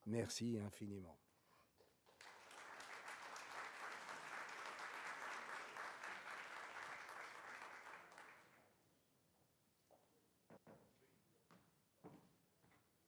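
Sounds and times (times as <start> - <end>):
audience applauding: 2.1 - 8.6.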